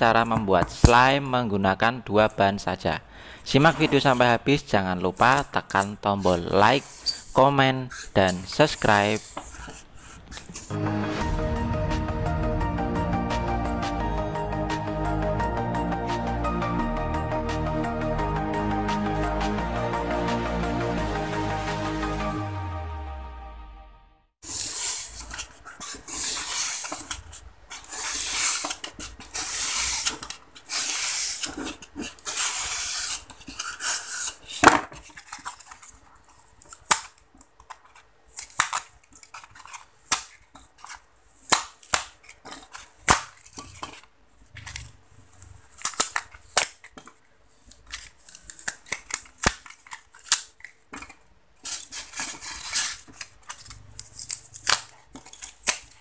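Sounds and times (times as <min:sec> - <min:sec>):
styrofoam squeaky rubbing: 0:05.2 - 0:10.7, 0:24.4 - 0:34.6
styrofoam snapping and crackling: 0:47.9 - 0:51.1, 0:51.7 - 0:56.0.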